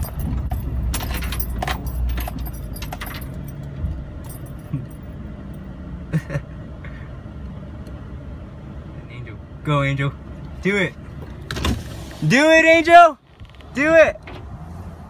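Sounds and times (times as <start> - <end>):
car interior rattling: 0.0 - 5.0
low car rumble: 0.0 - 15.0.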